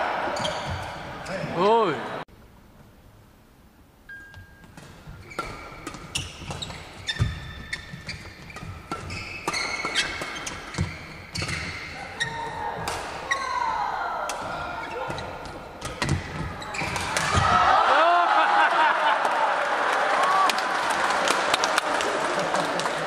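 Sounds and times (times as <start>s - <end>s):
sneakers squeaking on court: 0.3s - 1.5s, 4.3s - 13.6s, 14.5s - 17.3s.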